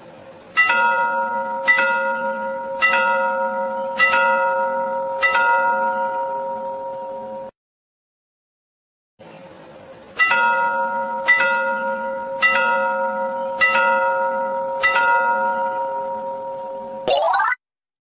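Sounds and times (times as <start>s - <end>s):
railway crossing bell ringing: 0.5s - 7.5s, 10.2s - 17.0s
rising sound effect: 17.1s - 17.6s.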